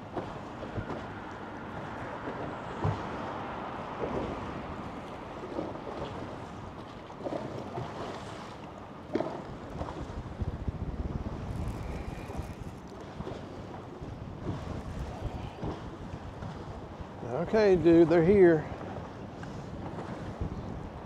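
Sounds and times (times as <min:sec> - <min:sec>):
water splashes: 0:00.0 - 0:21.0
waves slapping against boat hull: 0:00.0 - 0:21.0
wind buffeting microphone: 0:09.2 - 0:21.0.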